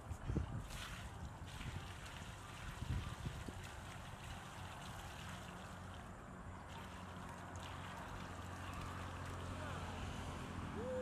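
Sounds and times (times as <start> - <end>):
water pouring from bucket: 0.6 - 6.1, 6.7 - 9.6
water splashing on wet ground: 0.6 - 10.1.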